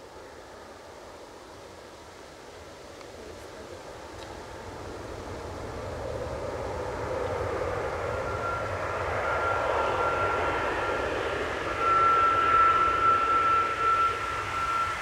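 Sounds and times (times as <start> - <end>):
airliner engine noise: 0.0 - 15.0
high jet whine: 4.4 - 15.0.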